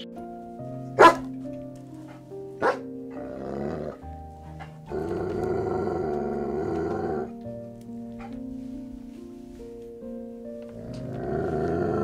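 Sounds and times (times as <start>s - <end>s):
background music with held notes: 0.0s - 12.0s
dog barking: 1.0s - 1.3s, 2.1s - 2.9s
dog growling: 2.6s - 7.4s, 10.7s - 12.0s.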